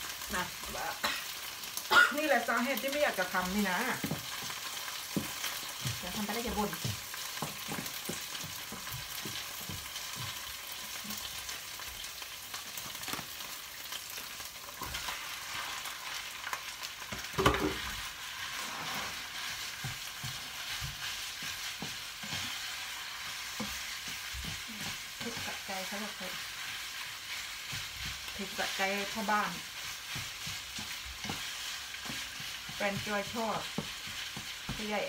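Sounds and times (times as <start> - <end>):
food sizzling in a frying pan: 0.0 - 35.0
spatula scraping a pan: 17.1 - 35.0.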